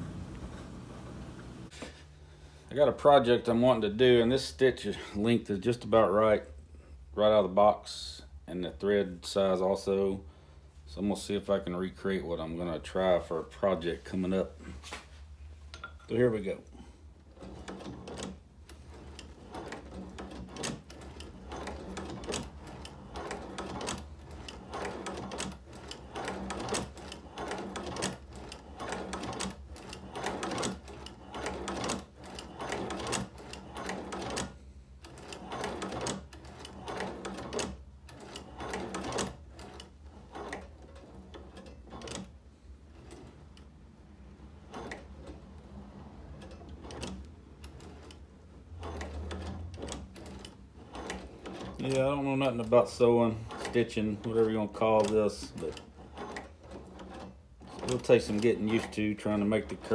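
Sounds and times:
hand-crank sewing machine clicking: 0:15.7 - 0:59.9.

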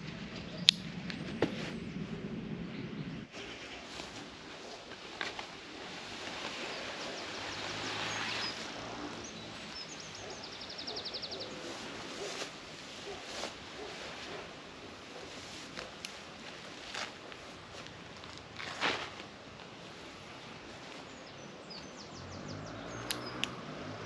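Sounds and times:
nylon fabric rustling: 0:03.7 - 0:10.4, 0:11.5 - 0:21.1.

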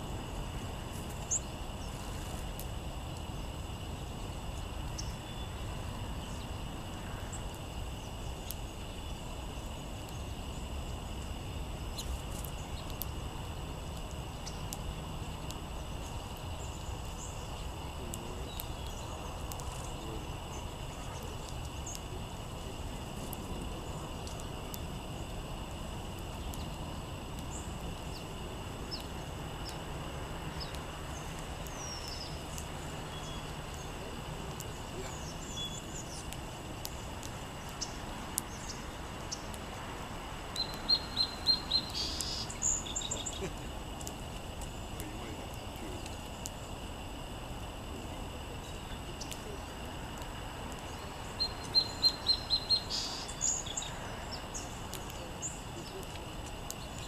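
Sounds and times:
outdoor background noise: 0:00.0 - 0:57.0
songbird singing: 0:00.0 - 0:57.0
faint bird chirps: 0:00.1 - 0:02.3, 0:04.2 - 0:25.4, 0:26.3 - 0:29.9, 0:30.5 - 0:39.6, 0:40.5 - 0:46.8, 0:50.8 - 0:57.0.

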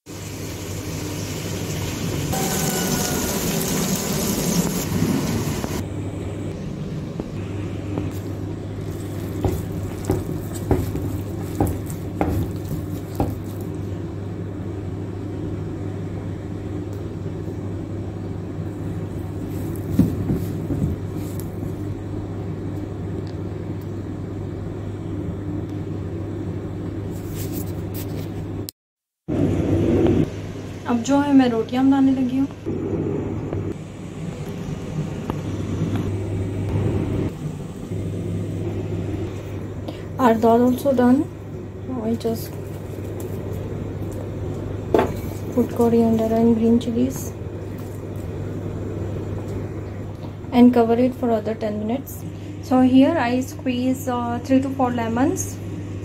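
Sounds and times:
low motor hum: 0:00.0 - 0:26.9, 0:29.3 - 0:56.0
hands kneading dough in a bowl: 0:08.8 - 0:13.8.

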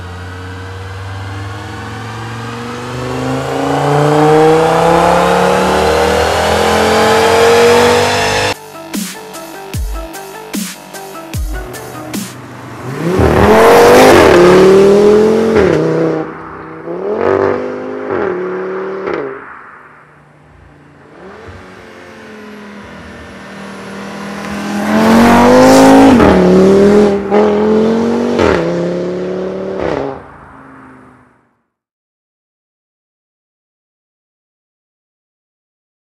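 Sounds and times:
car engine accelerating hard: 0:00.0 - 0:08.6, 0:12.4 - 0:31.3.

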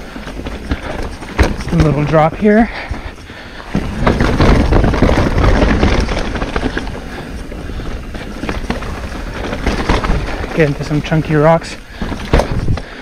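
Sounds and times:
bike rattling: 0:00.0 - 0:13.0
bike tyre rumble: 0:00.0 - 0:13.0
bike landing thump: 0:00.7 - 0:02.1, 0:03.7 - 0:06.8, 0:12.0 - 0:12.9.

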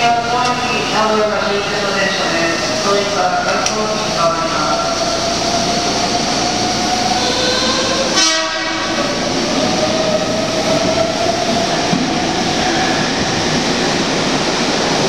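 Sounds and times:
electric train rumble: 0:00.0 - 0:15.0
train horn blast: 0:07.2 - 0:09.1.

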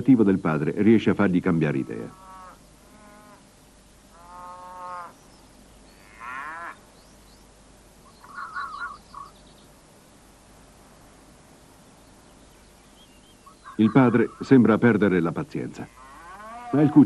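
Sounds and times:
fox whining calls: 0:04.2 - 0:05.2, 0:08.0 - 0:09.6, 0:13.1 - 0:14.6, 0:15.9 - 0:17.0
fox chattering call: 0:08.0 - 0:09.5, 0:13.4 - 0:14.9.

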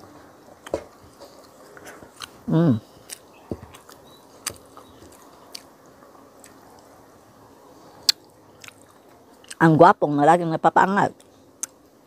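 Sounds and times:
person chewing wet food: 0:00.4 - 0:07.0, 0:07.9 - 0:09.6.

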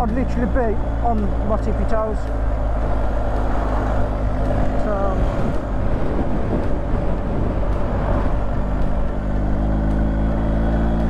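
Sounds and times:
motorcycle engine running: 0:00.0 - 0:11.0
wind noise on microphone: 0:02.3 - 0:11.0.

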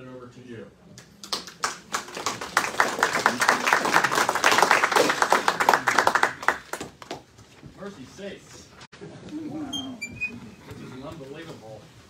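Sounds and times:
audience applauding: 0:01.2 - 0:07.2.

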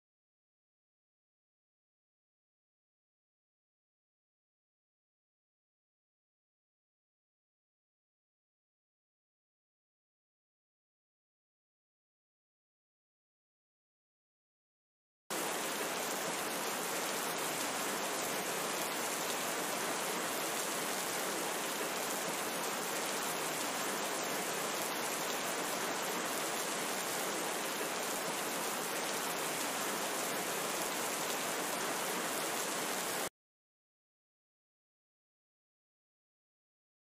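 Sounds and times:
steady rain falling: 0:15.3 - 0:33.3.

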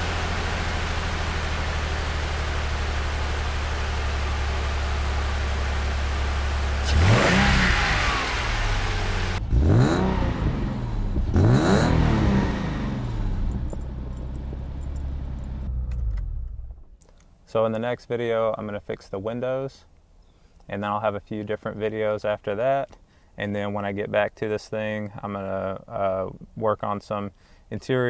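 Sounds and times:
car engine idling and revving: 0:00.0 - 0:17.0.

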